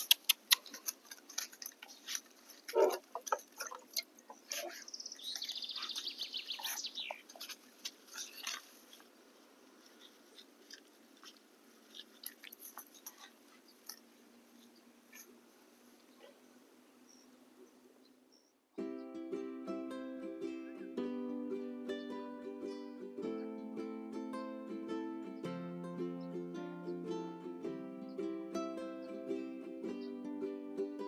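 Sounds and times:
grass being handled crackles: 0:00.0 - 0:16.2.

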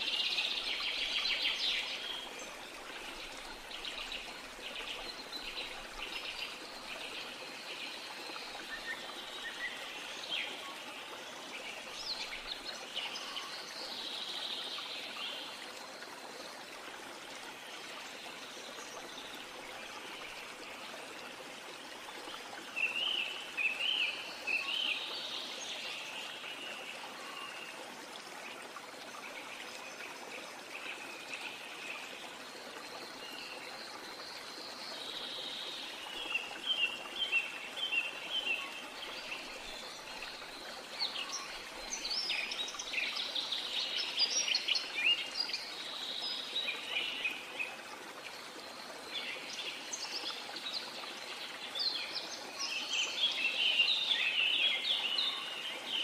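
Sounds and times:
steady outdoor hiss: 0:00.0 - 0:56.0.

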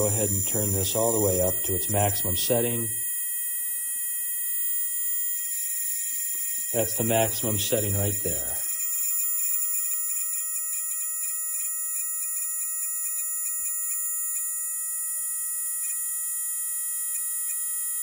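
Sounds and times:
electrical spark buzz: 0:00.0 - 0:12.4.

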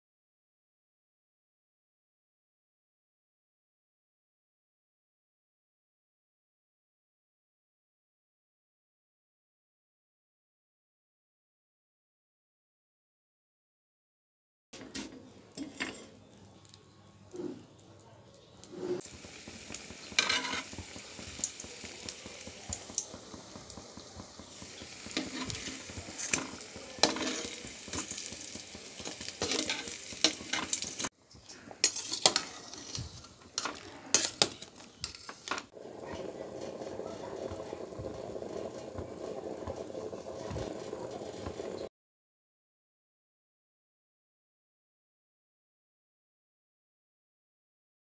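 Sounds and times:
metal spoon scraping pan: 0:14.8 - 0:16.4, 0:18.6 - 0:19.1, 0:19.7 - 0:21.8, 0:24.4 - 0:40.7
dough sizzling in hot oil: 0:18.6 - 0:31.2, 0:31.8 - 0:41.9.

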